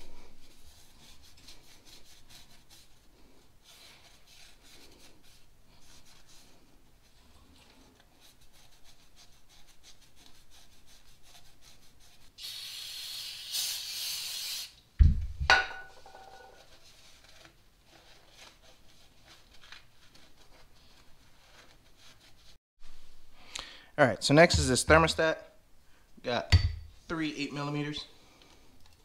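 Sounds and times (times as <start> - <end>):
aerosol can spraying: 12.4 - 14.8
loud thump with metallic ring: 15.0 - 16.3.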